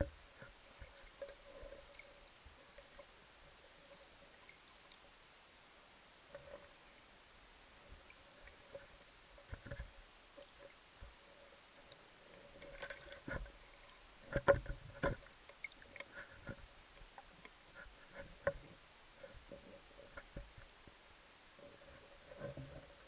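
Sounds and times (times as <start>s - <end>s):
faint steady hum: 0.0s - 23.0s
underwater knocks and clicks: 8.5s - 11.2s, 12.6s - 13.6s, 14.2s - 20.7s.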